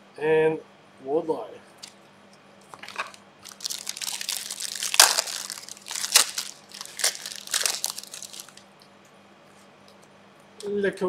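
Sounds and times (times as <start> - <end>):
card pack wrappers crinkling: 2.8 - 8.6.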